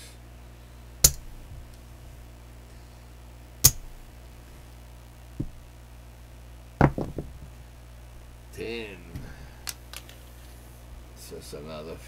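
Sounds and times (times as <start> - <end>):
low steady hum: 0.0 - 12.0
soft knock on felt table: 6.8 - 7.3.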